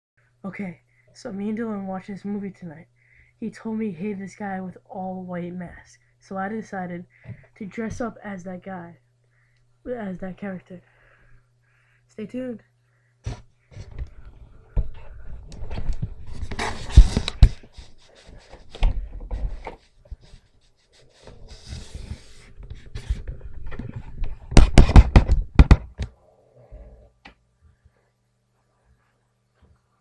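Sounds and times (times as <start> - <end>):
breathing: 0.2 - 1.2, 2.9 - 3.4, 7.1 - 7.6, 9.3 - 9.7, 10.8 - 12.1, 12.8 - 15.4.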